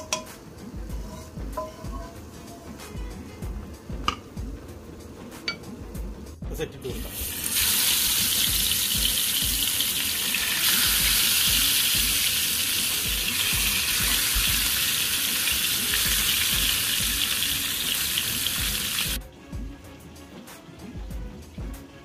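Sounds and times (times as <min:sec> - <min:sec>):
oil sizzling in a frying pan: 0:07.0 - 0:19.2.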